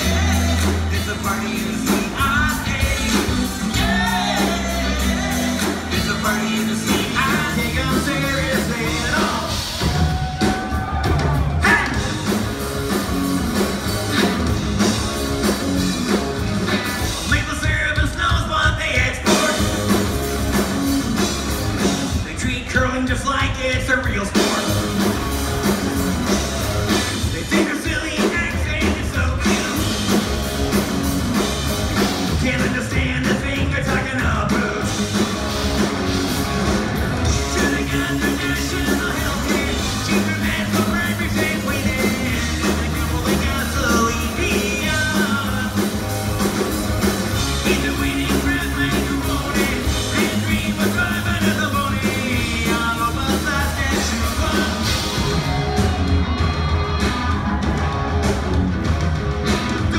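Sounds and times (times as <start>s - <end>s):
lead singer vocals: 0.0s - 12.2s, 26.3s - 30.2s, 32.3s - 35.0s, 37.2s - 46.1s, 47.3s - 55.9s
live rock band playing: 0.0s - 59.9s.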